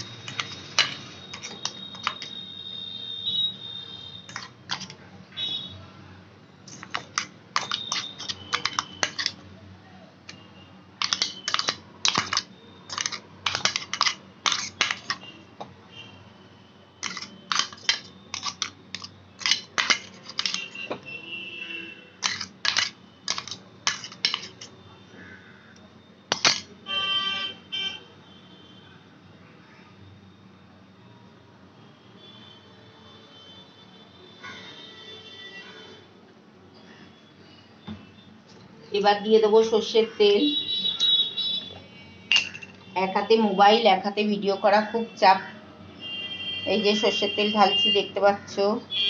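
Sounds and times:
spoon clinking on steel bowl: 0.0 - 2.4, 4.3 - 5.0, 6.7 - 9.4, 11.0 - 15.3, 17.0 - 20.8, 22.2 - 24.8, 42.3 - 42.8.

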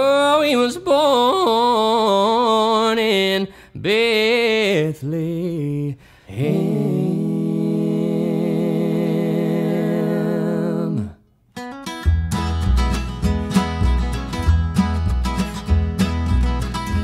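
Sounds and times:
voices singing in harmony: 4.5 - 11.2.

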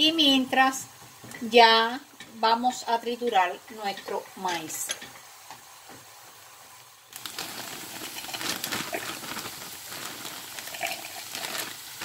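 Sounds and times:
corn kernels pouring into plastic bowl: 7.1 - 12.0
plastic bag crinkling: 7.1 - 12.0.

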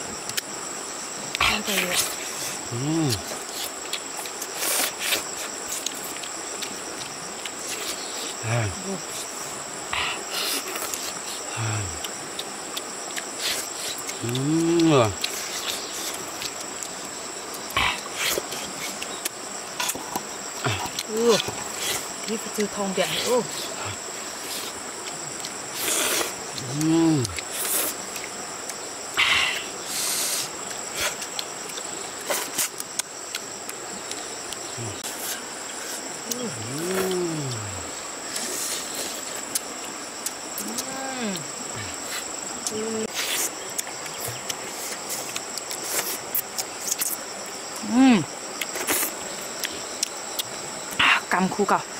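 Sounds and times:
crickets droning: 0.0 - 51.9
slurping and chewing: 1.3 - 47.8, 48.5 - 51.0
person humming: 2.7 - 3.4, 11.4 - 12.0, 14.2 - 15.2, 26.6 - 27.4, 34.8 - 35.2, 36.2 - 38.0, 40.6 - 42.0, 42.6 - 43.2, 47.8 - 48.3.

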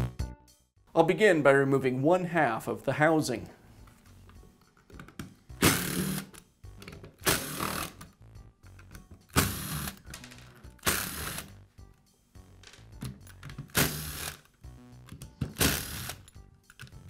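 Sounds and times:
cordless drill bursts: 7.2 - 7.9, 10.8 - 11.5, 13.8 - 14.4.

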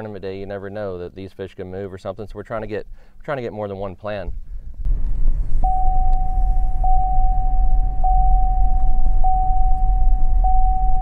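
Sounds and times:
loud low rumble: 4.6 - 11.0
high electronic tone: 5.6 - 11.0.

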